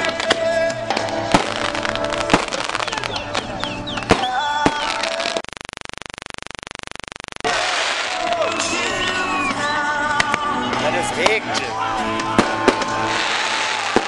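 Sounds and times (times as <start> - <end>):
fireworks banging: 0.0 - 5.4, 12.3 - 14.0
pulsing buzz: 4.9 - 7.5.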